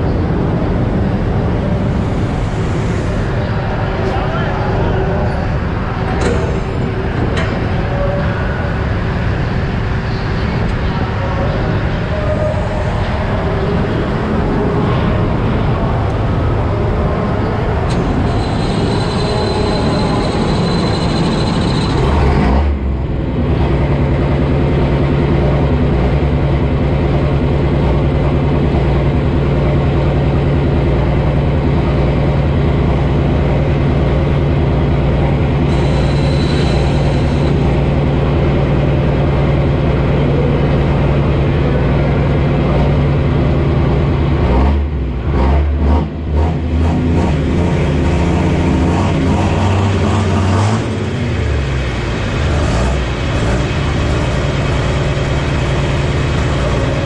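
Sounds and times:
faint high whine: 1.8 - 22.3, 35.7 - 38.0
tractor engine idling: 46.7 - 57.0.

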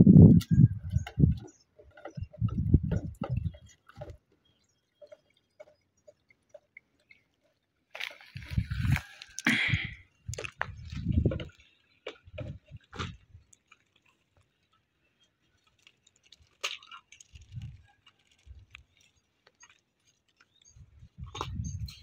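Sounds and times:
dull low thumps: 9.6 - 11.5.

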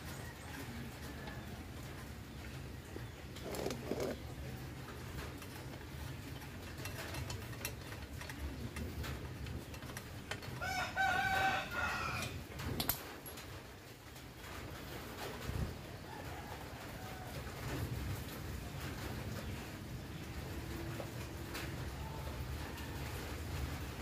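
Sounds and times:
rooster crowing: 10.6 - 12.4.

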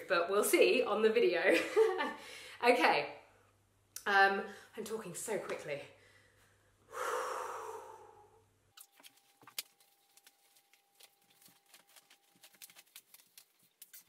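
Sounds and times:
woman exhaling through pursed lips: 6.9 - 8.4.

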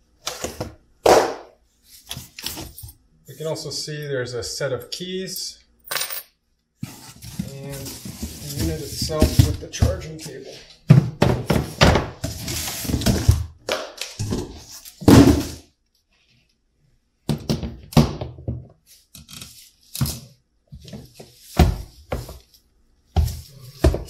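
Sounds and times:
cardboard rustling: 6.8 - 13.5.

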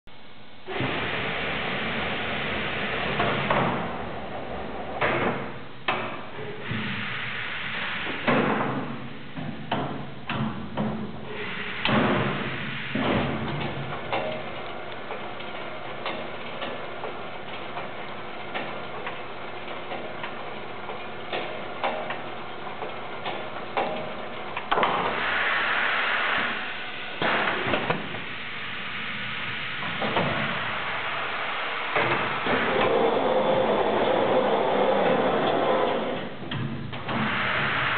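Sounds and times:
machine hum: 0.1 - 37.9
hiss burst: 0.7 - 4.0, 6.4 - 9.4, 11.2 - 14.6, 24.7 - 37.9
machine clanks and knocks: 3.1 - 6.9, 8.1 - 12.4, 13.0 - 25.2, 27.2 - 28.2, 31.9 - 37.4.

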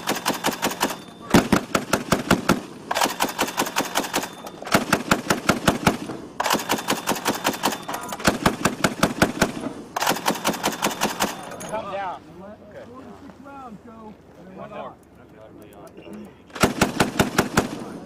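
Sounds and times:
grenade launcher firing bursts: 0.0 - 11.6, 16.5 - 18.0.

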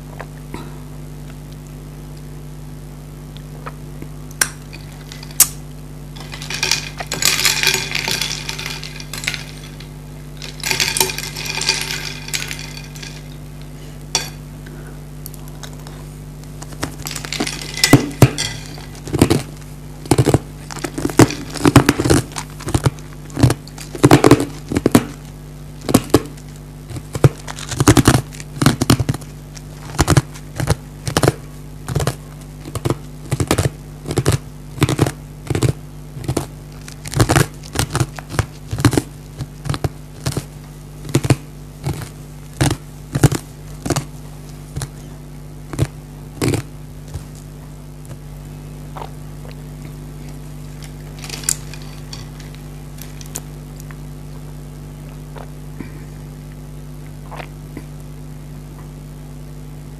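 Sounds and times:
steady low hum: 0.0 - 59.9
metal ladle clinking on ice: 6.2 - 13.4, 14.2 - 14.4, 17.0 - 19.1.

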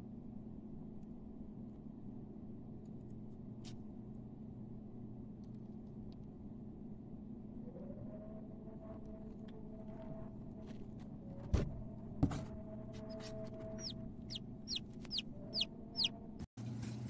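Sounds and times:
steady low hum: 0.0 - 17.0
chick peeping: 13.0 - 16.2.

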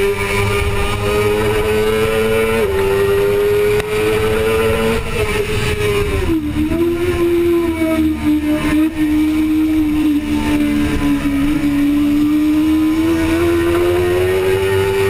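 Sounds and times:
motorcycle engine at high revs: 0.0 - 15.0.

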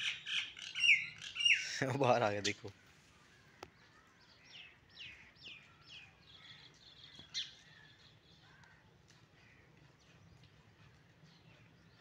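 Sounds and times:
bird chirping: 0.0 - 1.8, 3.7 - 8.7.

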